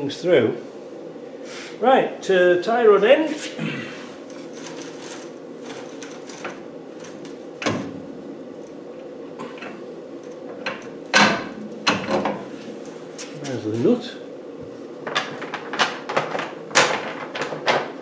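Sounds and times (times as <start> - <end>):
steady background hum: 0.0 - 18.0
sharp metal clunks: 10.7 - 12.5.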